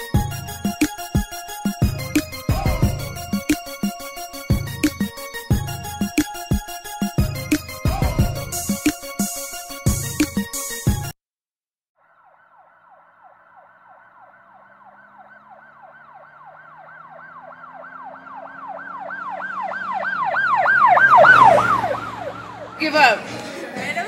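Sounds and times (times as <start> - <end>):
emergency siren yelping: 0.0 - 10.5, 12.0 - 23.6
hip-hop music: 0.0 - 11.2, 22.7 - 24.0.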